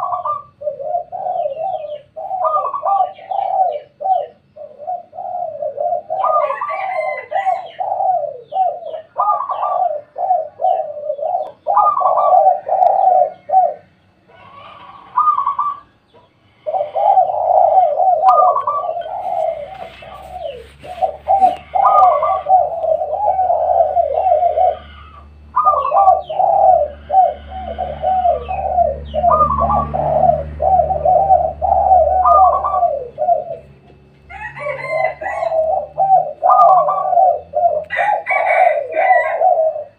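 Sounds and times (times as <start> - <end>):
doves cooing: 0.0 - 39.9
low hum: 15.0 - 37.9.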